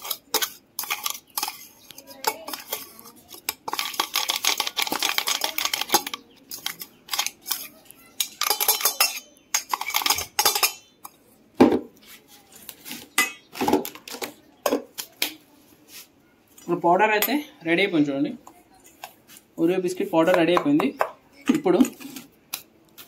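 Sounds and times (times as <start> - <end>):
steel jar and spoon clattering: 0.0 - 10.9, 13.2 - 13.5.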